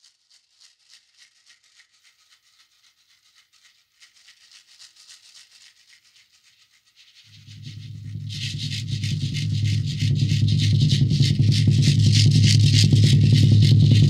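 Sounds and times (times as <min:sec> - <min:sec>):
shaker-like percussion: 0:00.0 - 0:14.0
soft held low note: 0:07.3 - 0:14.0.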